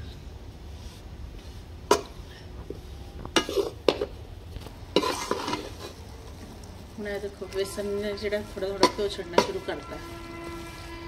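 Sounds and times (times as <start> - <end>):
metal spatula scraping pan: 3.4 - 4.0, 4.9 - 6.0, 7.4 - 11.0.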